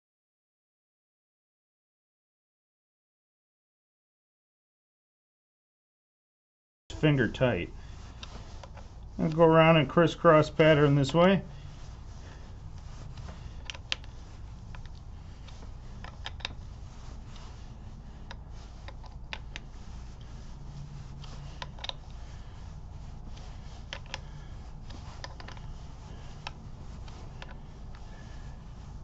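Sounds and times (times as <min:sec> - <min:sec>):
steady low hum: 0:06.9 - 0:29.0
hand ratchet clicking: 0:13.6 - 0:16.6, 0:21.2 - 0:22.1.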